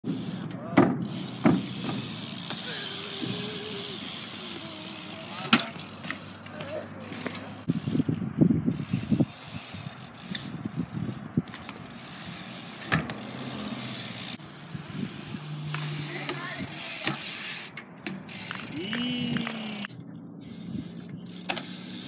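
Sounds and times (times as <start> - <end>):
bike tyres rolling on concrete: 0.0 - 22.0
bike knocks and clanks: 0.1 - 3.6, 5.3 - 7.7, 12.7 - 13.3, 15.7 - 19.8
bike landing impacts: 0.1 - 7.6, 11.5 - 13.3.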